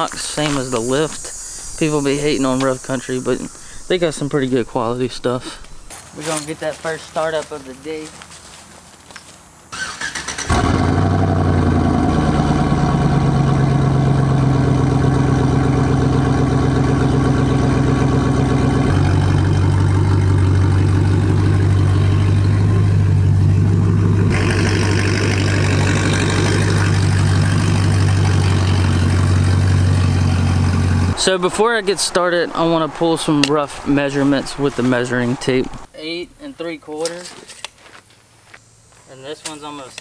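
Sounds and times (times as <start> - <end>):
hiss: 0.1 - 5.7
pickup engine cranking and starting: 9.7 - 31.2
engine running: 9.7 - 35.9.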